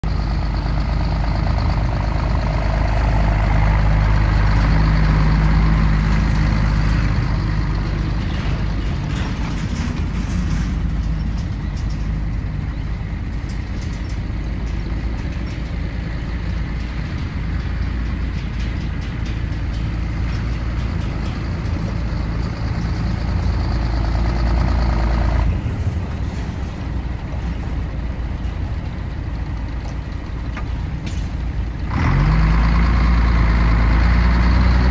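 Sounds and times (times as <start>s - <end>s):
diesel truck engine running: 0.0s - 34.9s.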